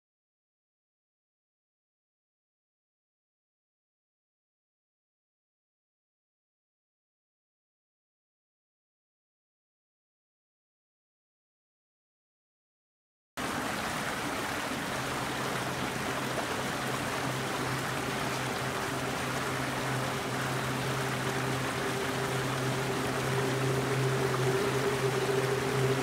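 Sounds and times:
low steady hum: 15.4 - 26.0
steady rushing noise: 15.6 - 26.0.

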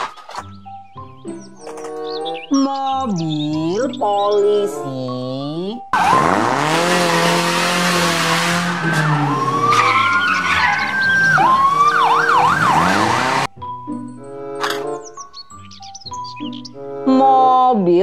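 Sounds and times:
police siren wailing and yelping: 6.0 - 7.3, 8.6 - 13.5
car engine revving: 6.0 - 13.6.

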